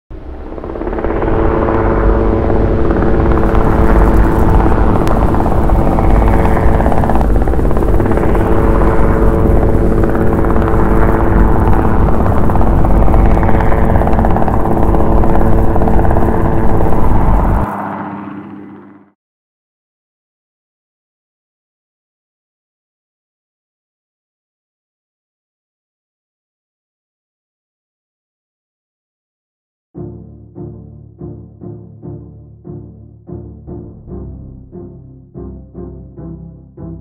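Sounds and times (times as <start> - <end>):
helicopter hovering: 0.1 - 19.2.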